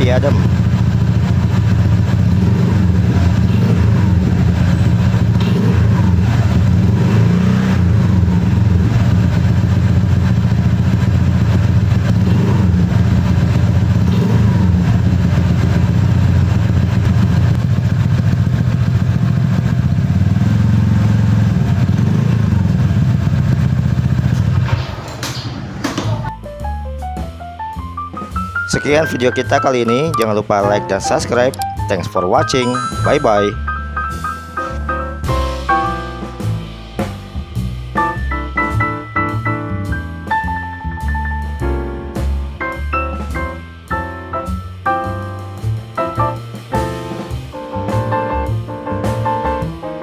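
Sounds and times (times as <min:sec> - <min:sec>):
scooter engine with throttle blips: 0:00.0 - 0:26.3.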